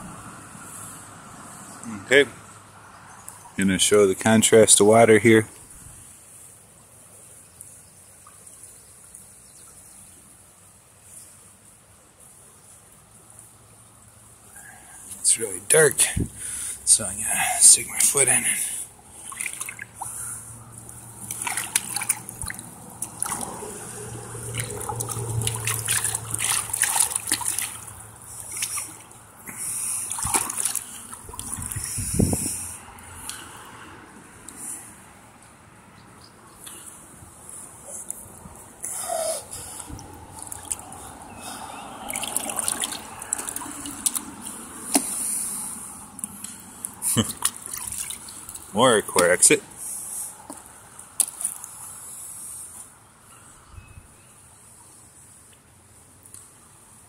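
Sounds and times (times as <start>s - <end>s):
shoe splashing in shallow water: 17.9s - 32.8s, 39.7s - 48.8s, 50.5s - 52.0s
hand brushing against dry branches: 24.4s - 33.5s.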